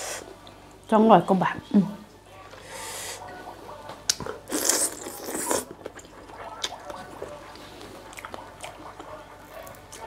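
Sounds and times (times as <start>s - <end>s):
person chewing: 4.1s - 10.0s.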